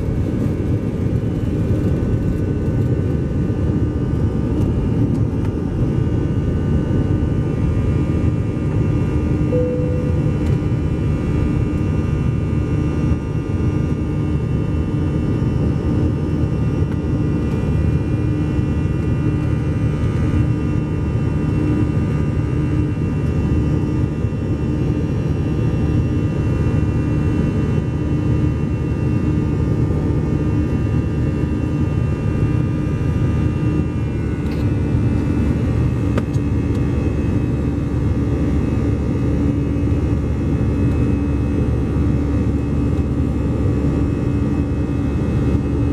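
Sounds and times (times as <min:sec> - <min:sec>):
jet engine rumble in cabin: 0:00.0 - 0:45.9
high whining tones: 0:09.5 - 0:11.0.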